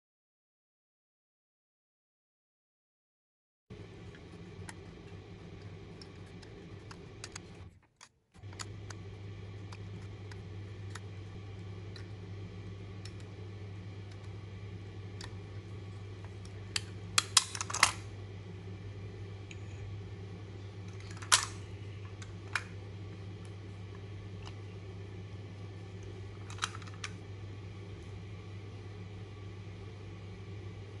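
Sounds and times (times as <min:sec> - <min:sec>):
low hum: 0:03.7 - 0:07.8, 0:08.4 - 0:31.0
combination dials clicking: 0:04.1 - 0:18.0.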